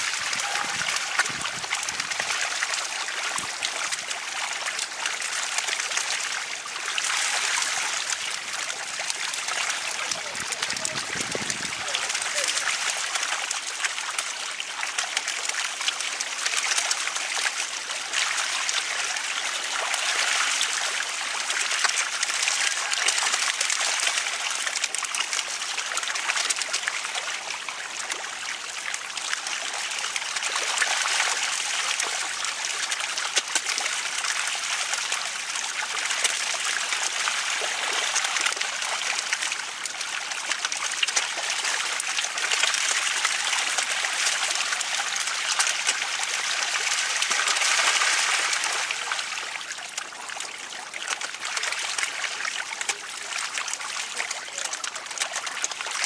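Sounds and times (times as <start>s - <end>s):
fish thrashing in water: 0.0s - 4.0s, 9.8s - 12.9s
water rushing and splashing: 0.0s - 56.0s.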